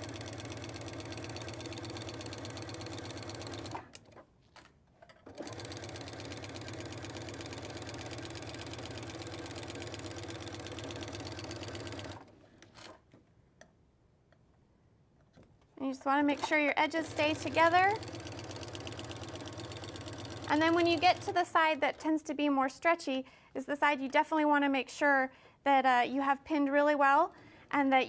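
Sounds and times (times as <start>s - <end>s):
sewing machine stitching: 0.0s - 4.2s, 5.2s - 13.1s, 16.0s - 21.6s.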